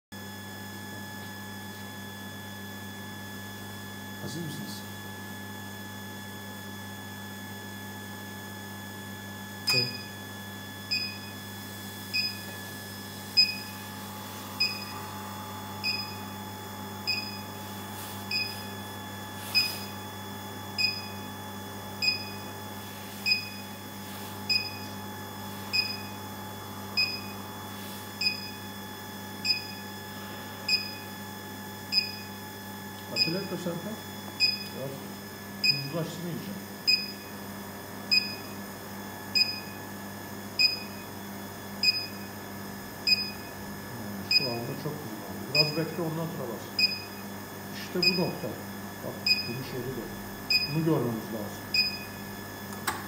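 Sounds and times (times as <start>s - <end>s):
constant electrical hum: 0.2s - 53.0s
induction heater beeping: 5.0s - 53.0s.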